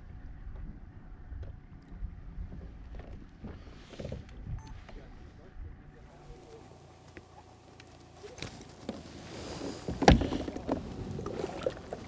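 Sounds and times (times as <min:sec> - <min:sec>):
water lapping against kayak hull: 0:06.4 - 0:12.0.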